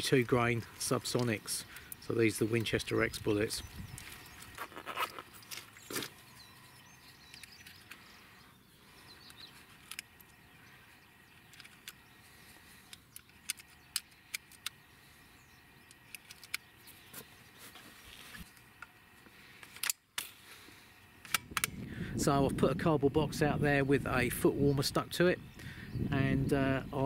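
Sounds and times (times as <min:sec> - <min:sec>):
cartridges clicking into magazine: 0:19.6 - 0:20.4.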